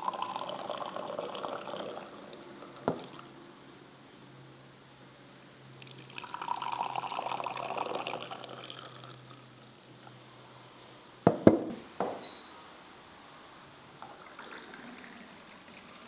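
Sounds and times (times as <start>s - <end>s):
tea pouring into glass: 0.0s - 3.4s, 5.8s - 9.6s, 14.0s - 16.0s
teapot knocking on wooden table: 2.9s - 3.1s, 11.3s - 12.2s.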